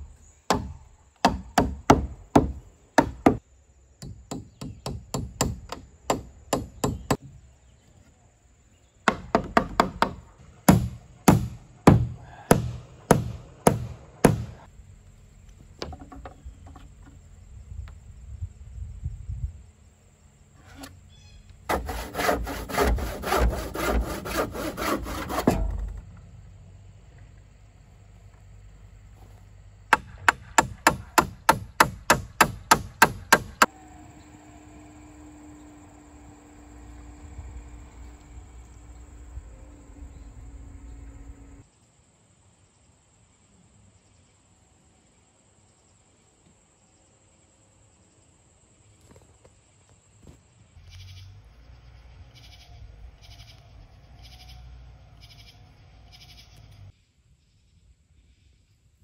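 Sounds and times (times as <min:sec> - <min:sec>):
hammer driving nail into wood: 0:30.0 - 0:33.7
insect buzzy chirps: 0:50.8 - 0:58.8.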